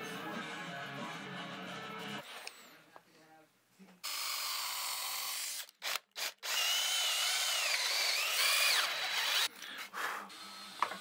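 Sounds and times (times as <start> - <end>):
power drill whining: 4.1 - 9.7, 10.3 - 11.0.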